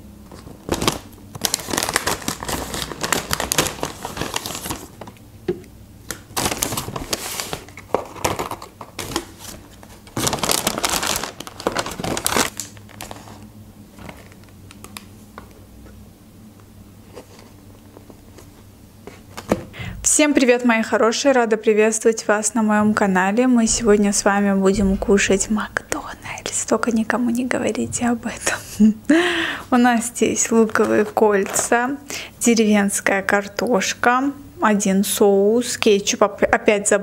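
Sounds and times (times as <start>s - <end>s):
paper bag rustling and crinkling: 0.3s - 5.2s, 6.3s - 15.3s, 30.6s - 31.8s.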